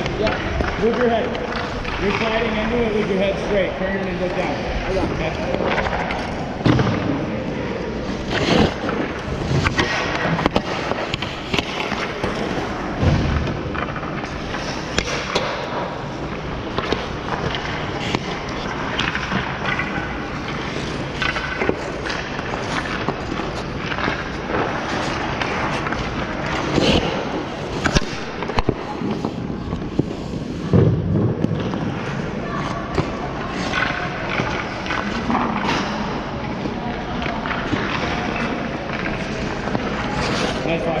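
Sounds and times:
ice skate blades scraping ice: 8.0s - 12.8s, 15.9s - 30.6s, 37.6s - 41.0s.

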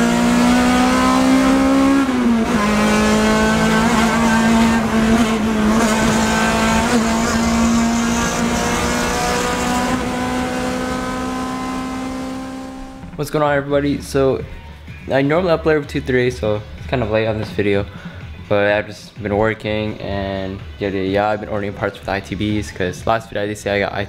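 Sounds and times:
car engine revving inside cabin: 0.0s - 13.2s.

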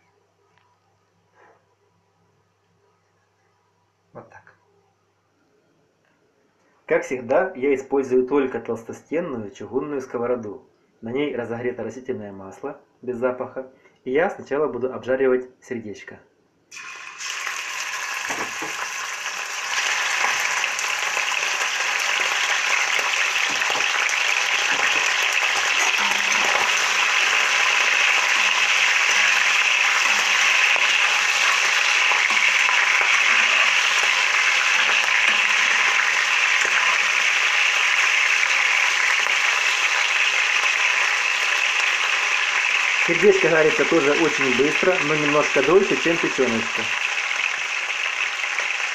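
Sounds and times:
meat sizzling in hot oil: 16.7s - 48.9s.

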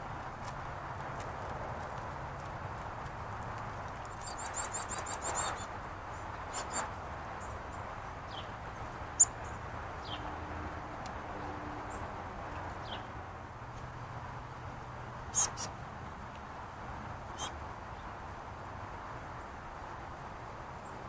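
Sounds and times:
songbirds chirping: 1.9s - 18.6s.

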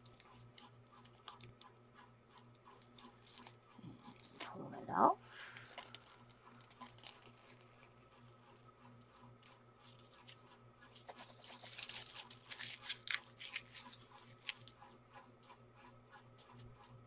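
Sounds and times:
plastic film crinkling: 3.0s - 4.6s, 5.4s - 8.7s, 11.0s - 14.8s.

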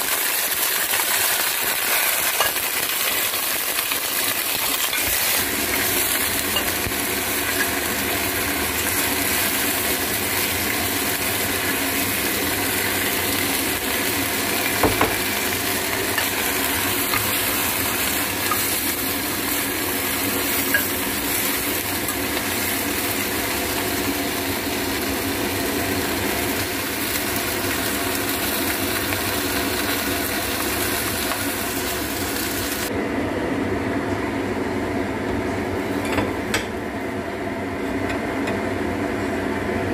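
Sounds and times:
food simmering hiss: 0.0s - 32.9s
metal spoon clinking on pot: 20.7s - 21.0s.

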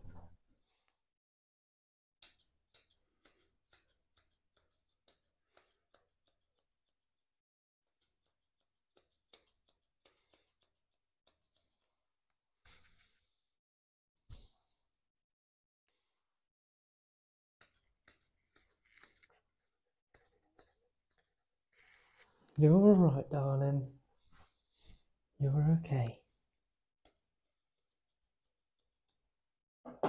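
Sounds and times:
shears snipping through fur: 2.2s - 7.2s, 7.8s - 11.9s, 17.6s - 19.5s, 26.2s - 29.4s.

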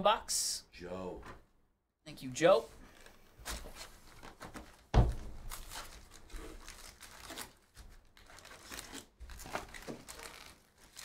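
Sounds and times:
foil packs crinkling: 5.4s - 11.0s.

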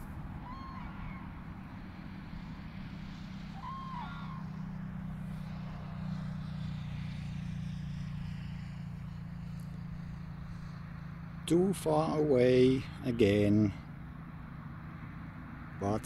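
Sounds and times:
crane trumpeting calls: 0.0s - 1.7s, 3.5s - 4.6s
road traffic drone: 0.0s - 16.0s.

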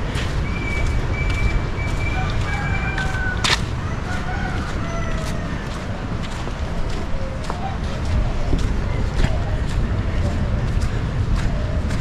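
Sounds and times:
roosters crowing: 1.5s - 6.2s.

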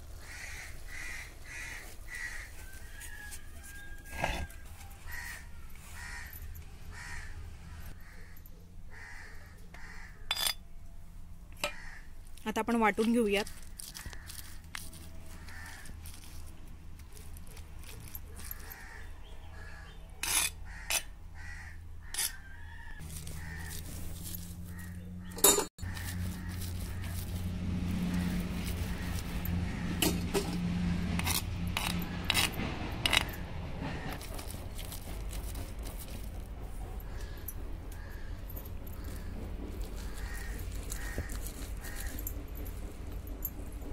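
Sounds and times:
crows cawing: 0.2s - 2.8s, 5.1s - 10.3s, 11.6s - 12.2s, 13.5s - 14.6s, 15.3s - 16.0s, 18.5s - 20.0s, 20.6s - 24.0s, 24.6s - 27.3s, 28.1s - 30.2s, 33.9s - 34.2s, 37.0s - 42.3s
stone roller grinding on stone slab: 31.2s - 36.5s.

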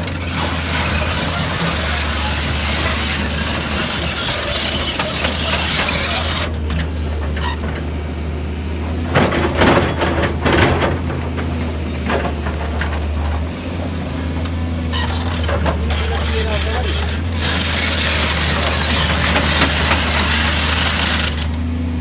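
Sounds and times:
bucket scraping rock: 0.0s - 6.6s, 14.8s - 21.5s
excavator diesel engine running: 0.0s - 22.0s
rocks knocking and clattering: 9.1s - 13.9s.

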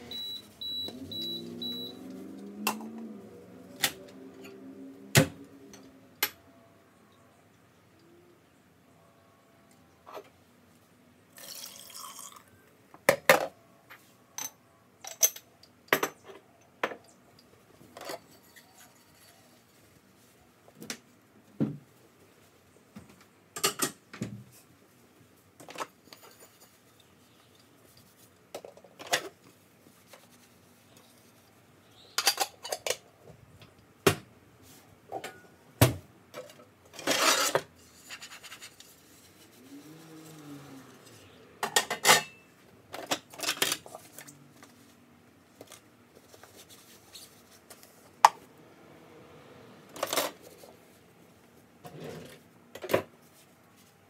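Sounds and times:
dishes and cutlery clinking: 41.6s - 43.9s.

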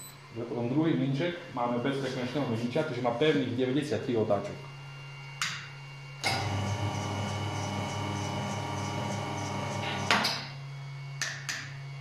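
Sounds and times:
electric motor running steadily: 5.8s - 11.2s.

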